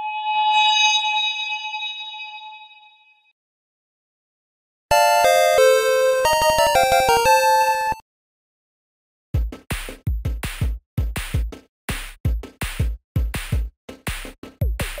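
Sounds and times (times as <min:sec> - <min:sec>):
electronic kick drums: 0:09.4 - 0:11.6, 0:14.6 - 0:15.0
snare or clap hits: 0:09.7 - 0:15.0.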